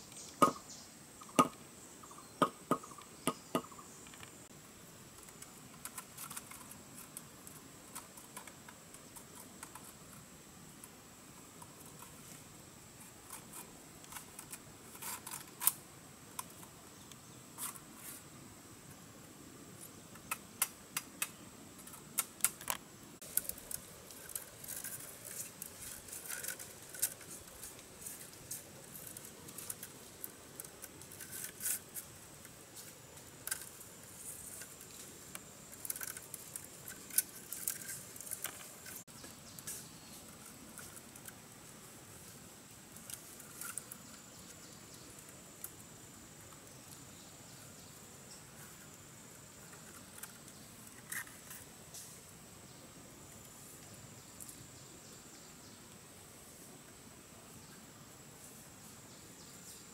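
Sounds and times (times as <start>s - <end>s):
bamboo strips rustling: 19.7s - 52.3s
bamboo cracking and clicking: 20.1s - 33.9s.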